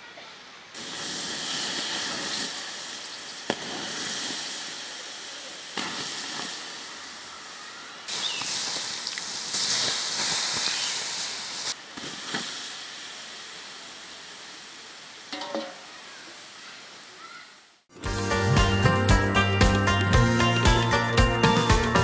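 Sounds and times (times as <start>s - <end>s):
faint hiss: 0.0s - 17.9s
hot oil sizzling: 0.8s - 17.1s.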